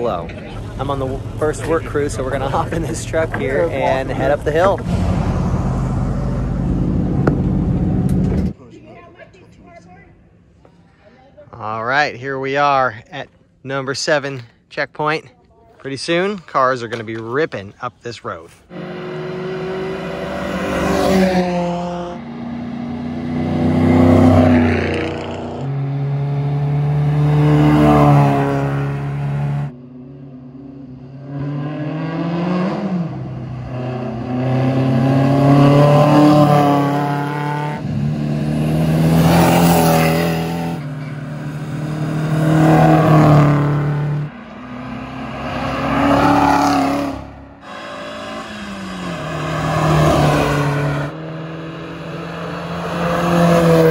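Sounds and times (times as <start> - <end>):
race cars accelerating past: 18.7 - 53.9.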